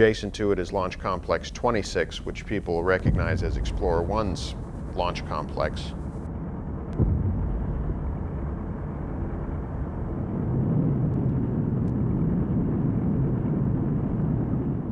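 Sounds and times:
low rumble of rocket explosion: 2.0 - 14.9
sharp thump: 3.0 - 6.3, 6.9 - 8.6.

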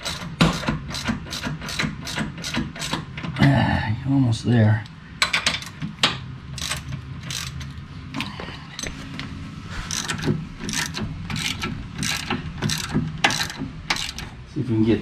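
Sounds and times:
ratchet wrench clicking: 0.0 - 3.1, 6.6 - 7.8, 9.9 - 14.3.

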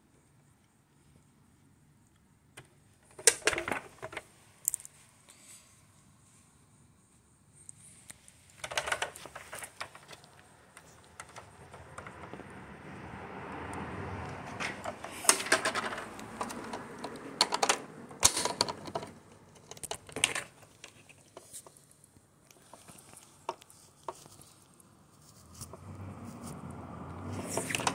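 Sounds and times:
hard plastic clicking and knocking: 3.1 - 4.2, 14.6 - 21.4.

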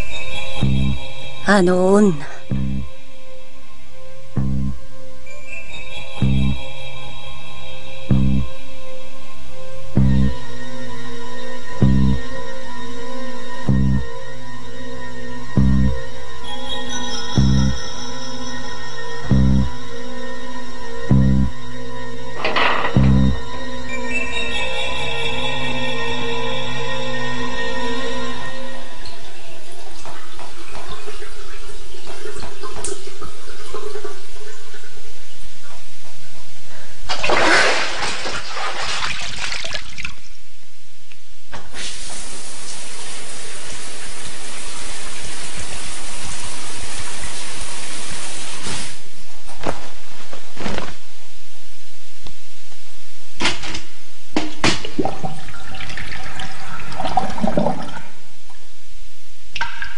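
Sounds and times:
rushing water: 37.1 - 40.3.

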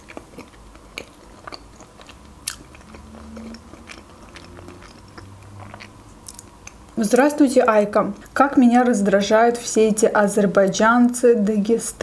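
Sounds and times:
person chewing pasta: 0.0 - 7.0
sharp mouth clicks: 0.1 - 7.0.

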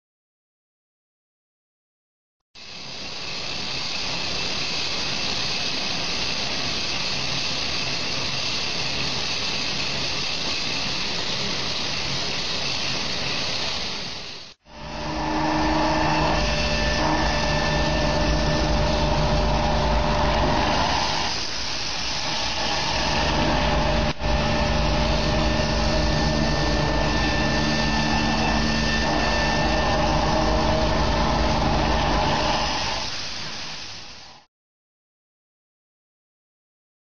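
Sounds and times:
loud steady jet hiss: 2.6 - 34.5
machine humming: 14.6 - 33.9.

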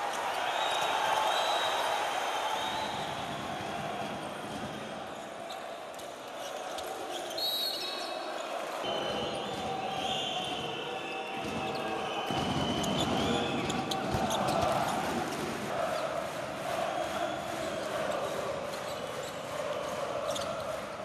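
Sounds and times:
arena crowd noise: 0.0 - 21.0
short whistle blast: 7.4 - 8.0
basketball bouncing on court: 11.4 - 15.5.

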